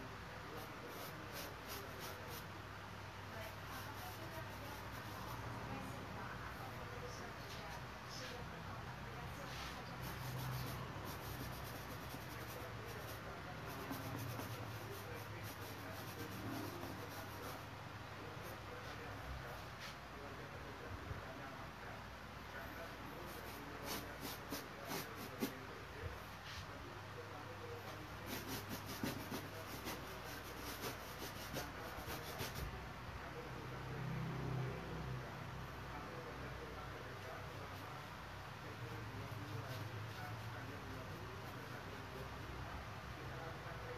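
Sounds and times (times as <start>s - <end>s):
drawing tool scratching on canvas: 0.6s - 2.4s, 9.6s - 17.6s, 23.3s - 25.6s, 28.2s - 32.7s.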